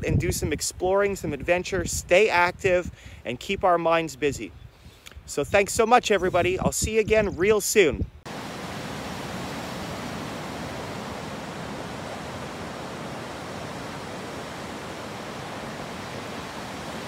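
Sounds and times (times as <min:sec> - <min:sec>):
ocean surf roaring: 0:08.3 - 0:17.0.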